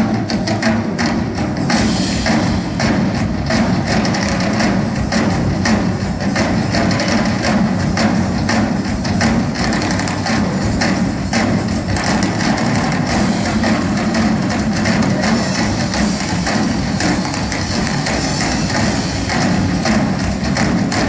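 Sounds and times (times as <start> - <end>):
driving drum strokes: 0.0 - 21.0
orchestra playing: 10.3 - 20.9.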